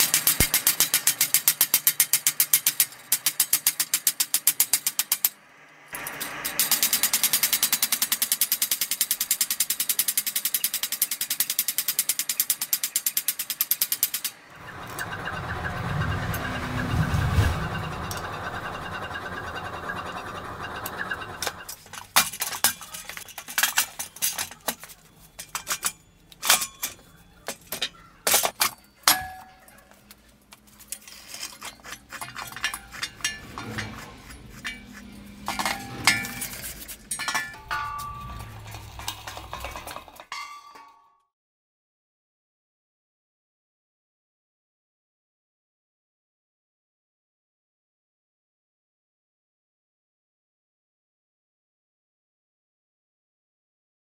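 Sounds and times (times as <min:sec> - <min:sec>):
heavy metal clanks: 0:12.6 - 0:29.8, 0:30.8 - 0:41.0
steady rushing sound: 0:14.6 - 0:21.4.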